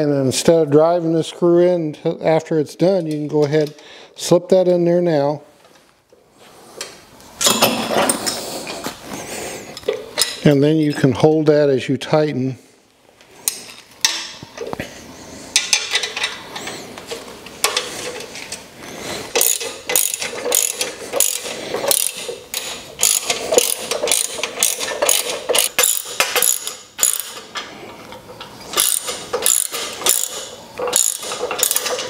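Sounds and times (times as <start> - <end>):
ratchet wrench clicking: 19.3 - 27.4, 28.7 - 32.0.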